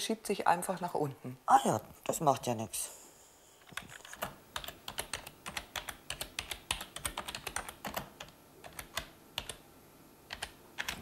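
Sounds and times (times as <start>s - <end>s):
typing on computer keyboard: 3.6s - 9.6s, 10.3s - 11.0s.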